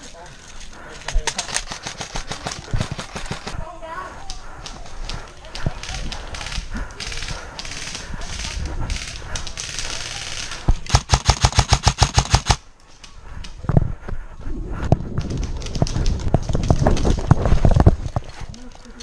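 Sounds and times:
airsoft rifle full-auto burst: 10.9s - 12.6s.

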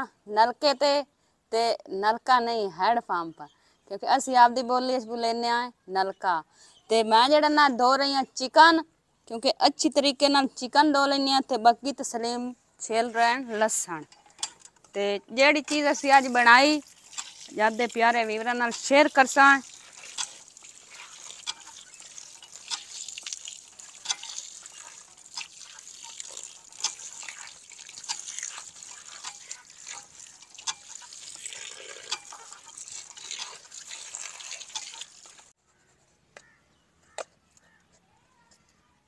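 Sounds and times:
drips and clicks: 13.7s - 35.5s
water splashing into bowl: 15.8s - 35.5s.

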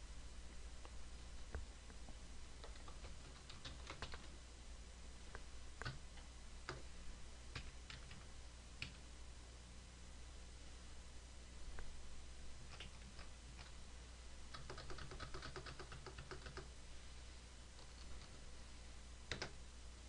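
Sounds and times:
low steady hum: 0.0s - 20.0s
keyboard keystrokes: 2.6s - 4.3s, 5.8s - 6.0s, 12.7s - 13.7s, 14.5s - 16.7s, 19.3s - 19.6s.

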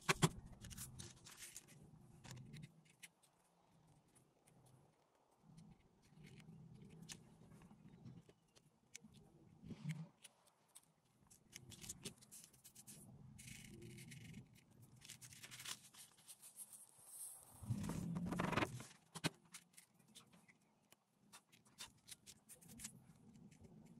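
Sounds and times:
paper sheet rustling: 15.0s - 19.7s.

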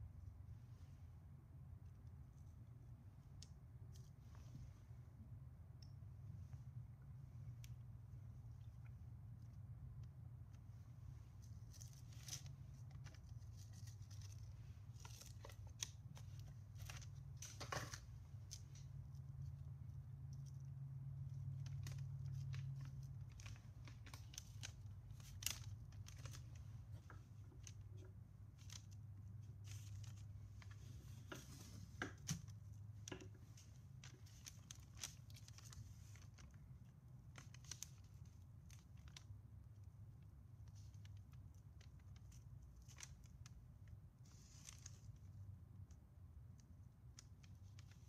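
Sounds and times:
low steady hum: 0.0s - 48.0s
light clicks and taps of cardboard tubes: 31.2s - 36.5s.

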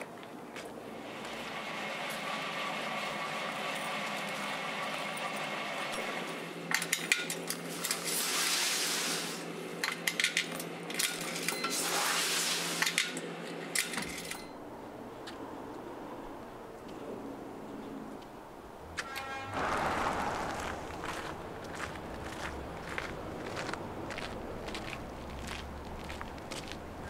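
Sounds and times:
room hum: 14.4s - 27.0s
rushing swells: 18.8s - 23.4s.

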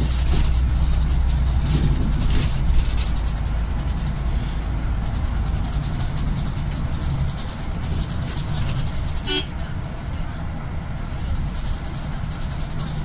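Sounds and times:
car engine and road rumble: 0.0s - 13.0s
car horn toot: 9.2s - 9.6s.

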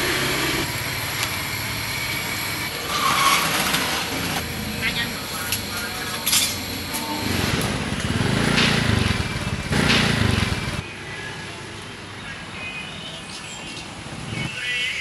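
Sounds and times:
street background noise: 0.0s - 15.0s
vehicles passing close by: 6.6s - 14.6s.

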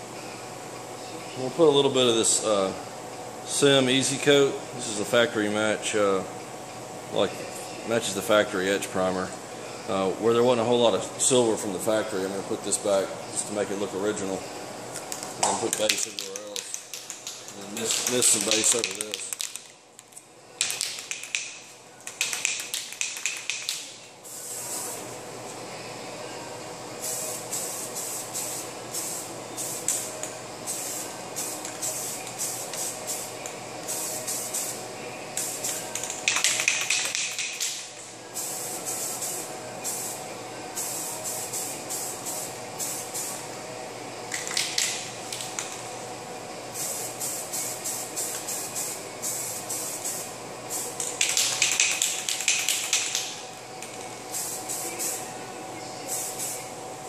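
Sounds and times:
spray paint can hissing: 15.1s - 19.6s, 20.6s - 25.0s, 27.0s - 34.8s, 35.4s - 40.2s, 40.8s - 43.4s, 46.7s - 55.2s, 56.1s - 56.6s.

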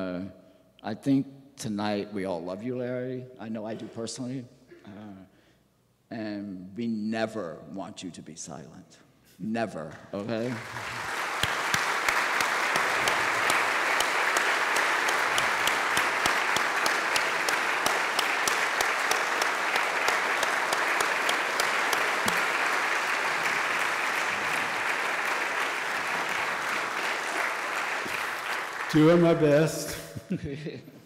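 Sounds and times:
audience applauding: 10.2s - 29.8s.

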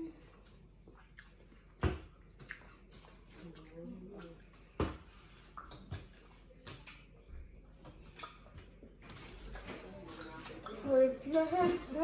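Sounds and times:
chewing sounds: 0.3s - 4.4s.

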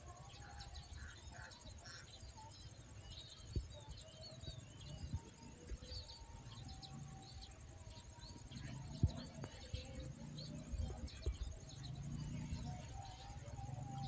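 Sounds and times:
birds chirping: 0.0s - 14.0s
low outdoor rumble: 8.2s - 14.0s.

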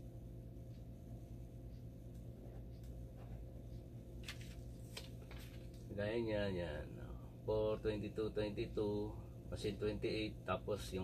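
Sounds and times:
low electrical hum: 0.0s - 11.0s
paper rustle: 4.2s - 5.8s.

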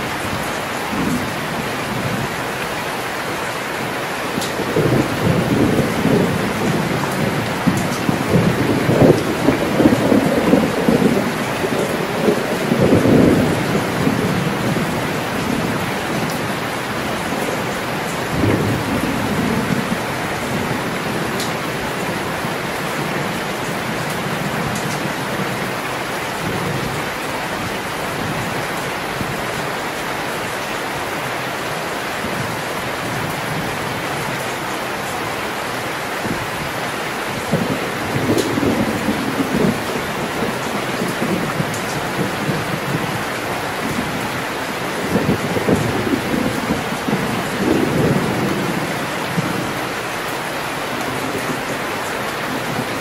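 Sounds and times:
heavy rain pouring: 0.0s - 53.0s
thunder rumbling: 4.3s - 29.5s, 37.2s - 50.1s.

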